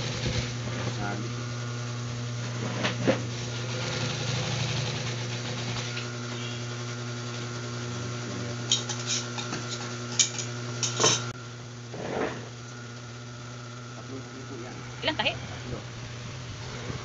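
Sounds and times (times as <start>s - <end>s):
sewing machine motor humming: 3.0s - 6.7s.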